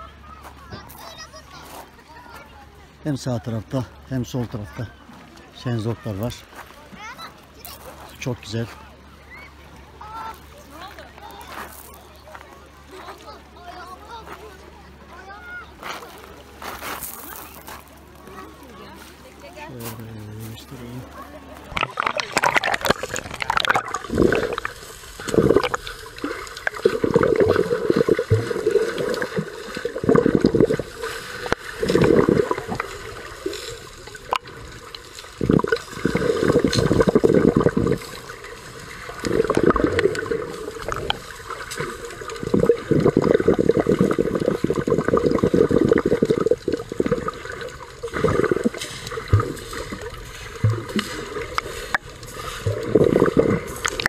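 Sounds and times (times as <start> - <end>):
muffled underwater rushing water: 20.2 - 54.0.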